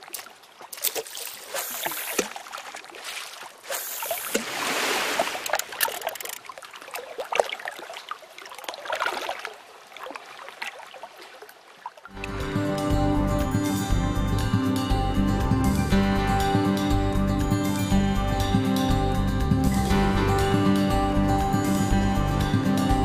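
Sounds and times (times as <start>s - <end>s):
running water splashing: 0.0s - 12.2s.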